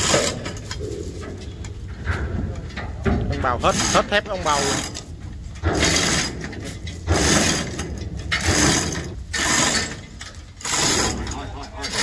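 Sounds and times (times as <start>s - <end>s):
chain hoist clicking and rattling: 0.0s - 0.8s, 3.4s - 12.0s.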